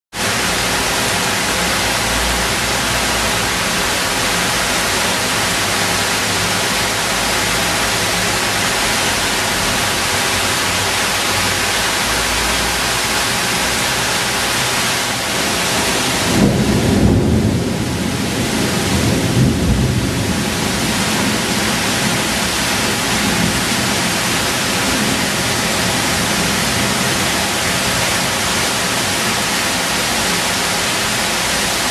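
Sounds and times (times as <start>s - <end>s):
heavy rain hiss: 0.2s - 31.9s
low thunder rumble: 16.0s - 22.4s.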